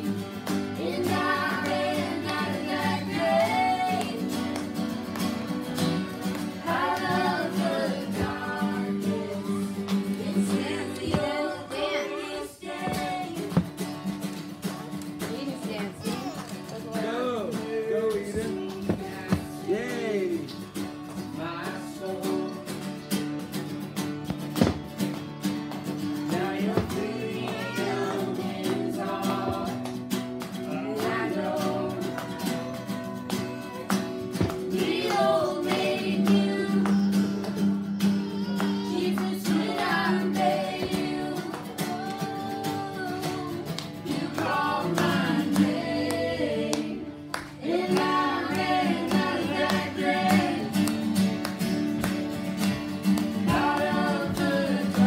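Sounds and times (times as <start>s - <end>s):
strummed acoustic guitars: 0.0s - 55.0s
woman singing: 0.8s - 4.6s, 6.6s - 13.8s, 15.2s - 17.2s, 17.8s - 19.7s, 26.3s - 30.0s, 30.6s - 37.4s, 38.4s - 50.9s, 53.4s - 55.0s.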